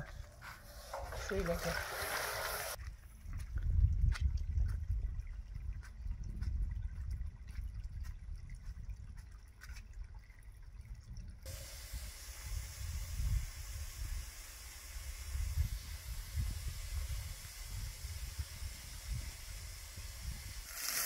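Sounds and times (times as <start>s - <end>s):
running water hiss: 0.6s - 2.8s, 11.4s - 21.0s.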